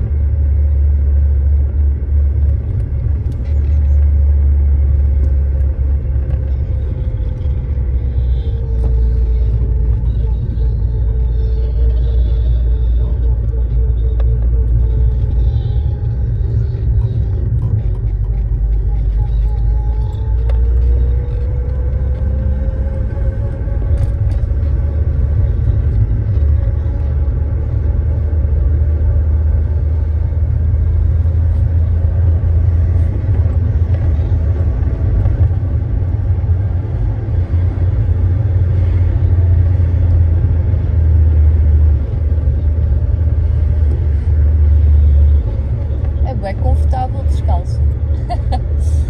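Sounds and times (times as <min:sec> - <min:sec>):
engine and road rumble: 0:00.0 - 0:49.0.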